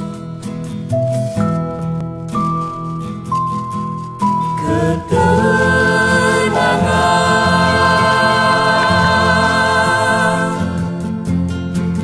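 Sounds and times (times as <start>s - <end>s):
backing music: 0.0s - 12.0s
choir singing held notes: 4.6s - 11.3s.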